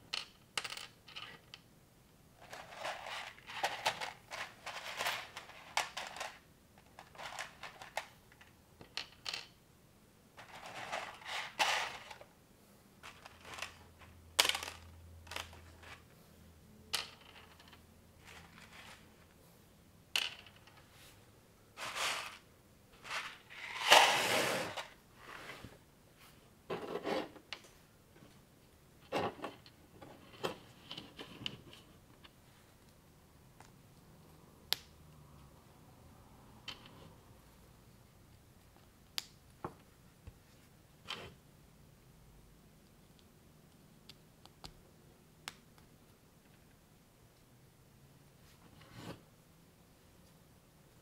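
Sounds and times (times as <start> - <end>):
rummaging through plastic pieces: 2.4 - 6.4, 7.0 - 8.0, 10.4 - 12.2, 13.0 - 13.8.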